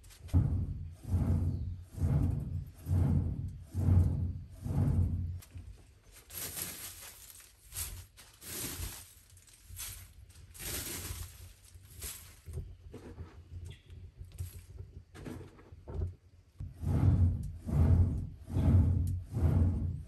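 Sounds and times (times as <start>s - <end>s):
charcoal crunching and clinking: 6.2s - 12.6s.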